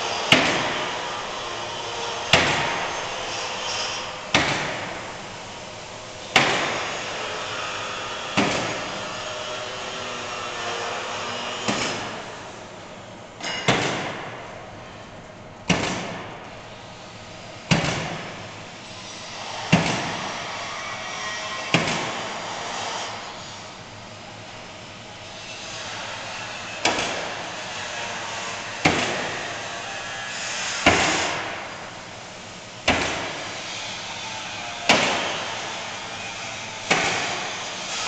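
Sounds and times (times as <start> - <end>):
machinery hum: 0.0 - 38.0
nail gun bangs: 0.3 - 1.0, 2.3 - 3.0, 4.3 - 5.1, 6.3 - 7.2, 8.4 - 9.0, 11.6 - 12.2, 13.4 - 14.4, 15.7 - 16.4, 17.7 - 18.4, 19.7 - 20.3, 21.7 - 22.3, 26.8 - 27.4, 28.8 - 29.5, 30.7 - 31.7, 32.9 - 33.5, 34.9 - 35.8, 36.8 - 37.6.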